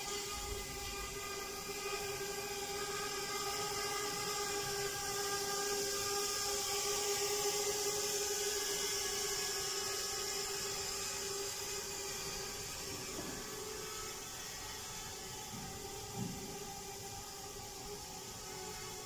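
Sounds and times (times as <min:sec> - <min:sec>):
drone propellers whining: 0:00.0 - 0:19.0.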